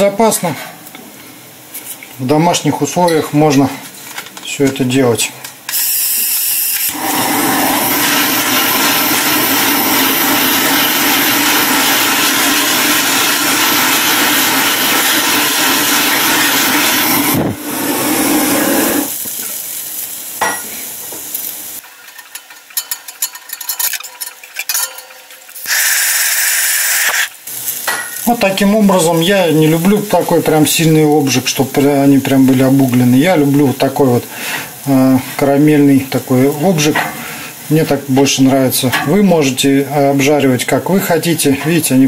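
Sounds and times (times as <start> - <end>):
gas torch hissing: 5.7 - 21.8, 25.6 - 37.8.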